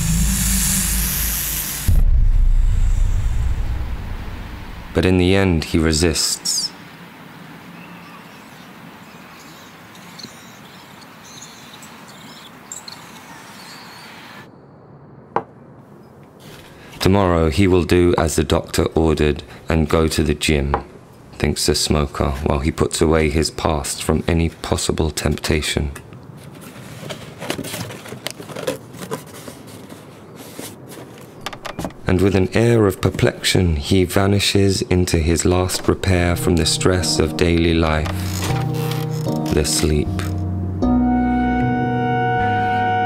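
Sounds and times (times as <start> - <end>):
low hiss: 0.0 - 9.9
steady background hiss: 0.0 - 26.4
cardboard box being folded: 26.4 - 31.4, 38.1 - 40.4.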